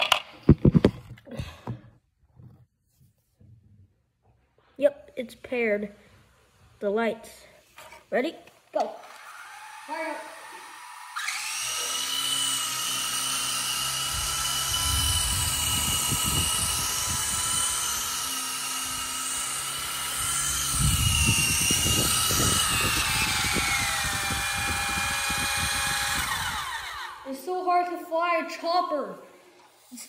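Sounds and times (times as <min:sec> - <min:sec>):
toy helicopter rotor whine: 0:08.8 - 0:27.4
low rumbling: 0:14.0 - 0:18.2, 0:20.1 - 0:27.1.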